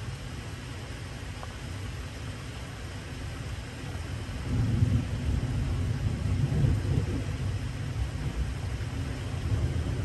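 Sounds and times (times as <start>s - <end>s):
heavy rain hiss: 0.0s - 10.0s
thunder rumbling: 4.5s - 8.7s.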